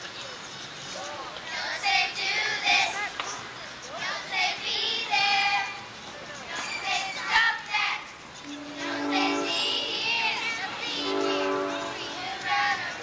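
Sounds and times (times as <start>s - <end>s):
girls singing together: 4.0s - 5.8s, 6.8s - 13.0s.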